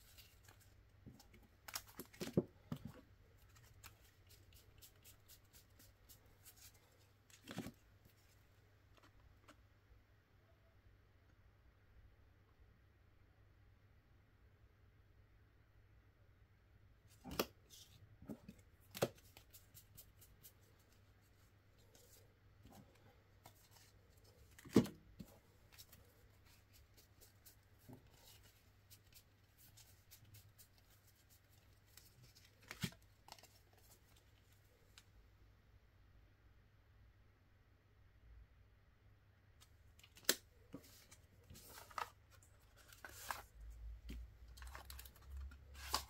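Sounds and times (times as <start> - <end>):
playing cards clicking and tapping: 17.3 - 17.5, 18.3 - 19.6.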